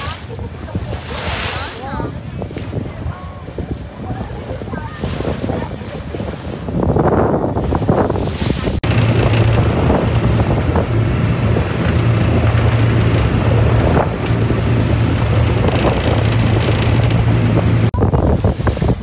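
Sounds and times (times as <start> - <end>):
churning wake rushing: 0.0 - 19.0
wind buffeting microphone: 0.0 - 19.0
motorboat engine drone: 8.6 - 18.6.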